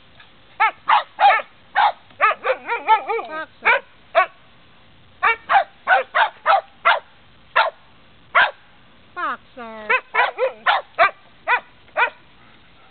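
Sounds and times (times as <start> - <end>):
small dog barking and yipping: 0.6 - 4.4, 5.2 - 7.8, 8.4 - 8.6, 9.9 - 12.2.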